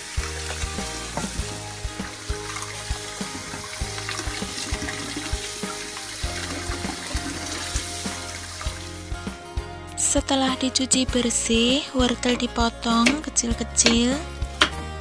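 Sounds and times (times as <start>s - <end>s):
hands scrubbing vegetables: 0.0s - 9.0s.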